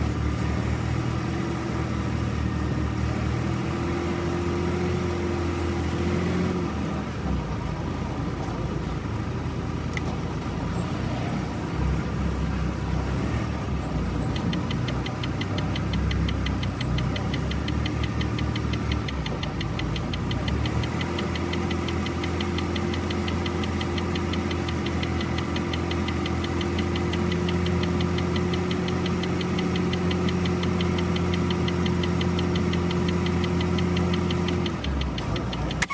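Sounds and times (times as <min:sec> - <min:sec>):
diesel truck engine droning: 0:00.0 - 0:35.9
fast even ticking: 0:14.1 - 0:35.9.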